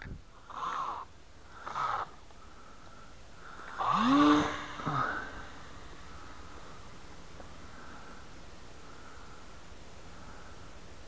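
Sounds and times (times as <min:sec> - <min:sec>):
model plane motor whining: 0:03.5 - 0:07.2.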